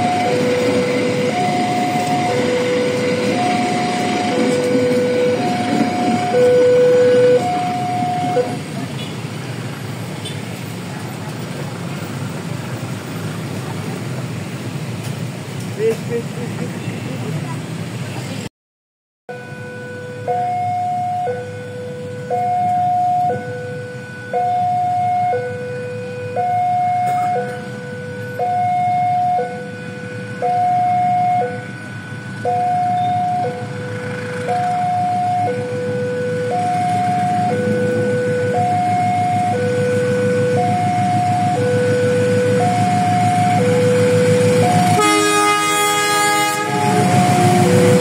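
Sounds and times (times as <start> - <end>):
level crossing two-tone alarm: 0.0 - 8.6, 19.3 - 48.0.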